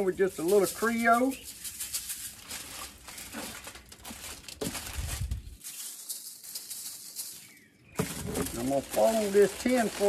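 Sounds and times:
seasoning shaker rattling: 0.0 - 3.2, 5.0 - 7.6, 8.6 - 10.0
wind rumbling on microphone: 4.8 - 5.6.

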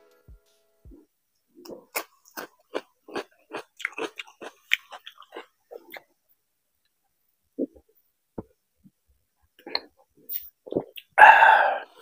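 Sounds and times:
chewing food: 1.6 - 6.1.

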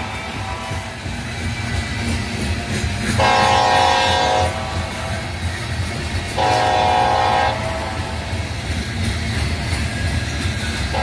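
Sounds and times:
freight train cars rumbling past: 0.0 - 11.0
locomotive air horn blasts: 3.2 - 5.3, 6.4 - 8.1.

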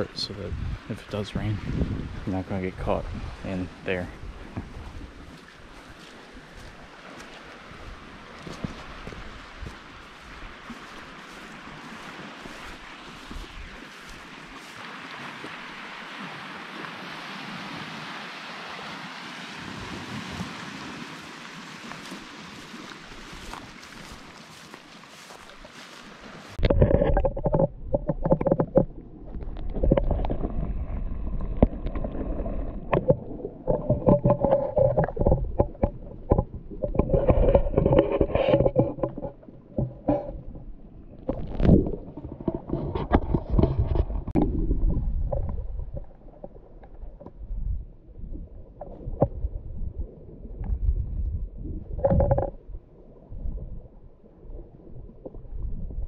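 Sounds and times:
muffled sea water sloshing: 0.0 - 50.9
underwater knocks and bumps: 3.9 - 5.4, 26.6 - 52.8.

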